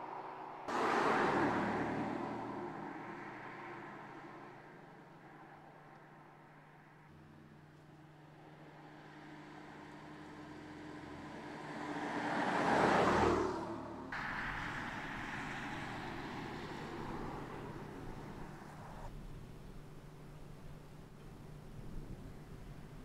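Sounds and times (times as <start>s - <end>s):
car passing by: 0.0s - 7.3s, 8.4s - 19.1s
car running: 0.0s - 23.0s.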